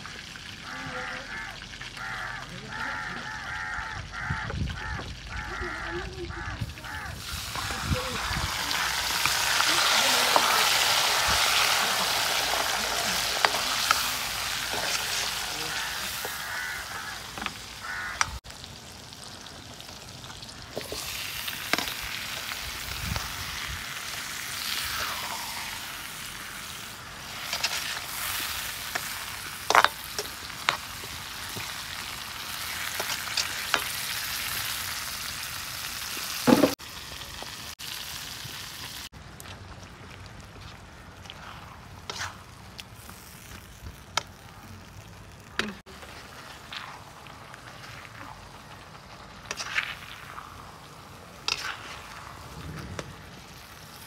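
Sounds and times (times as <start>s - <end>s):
onions sizzling in a wok: 0.0s - 54.0s
metal ladle scraping pan: 49.4s - 50.4s, 51.4s - 52.2s.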